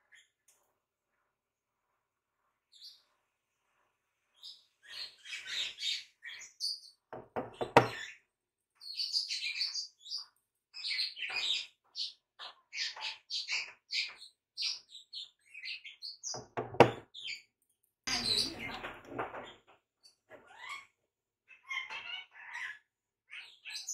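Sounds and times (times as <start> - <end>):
birds chirping: 4.3 - 23.9
sharp knocks: 7.2 - 8.0, 16.4 - 17.0.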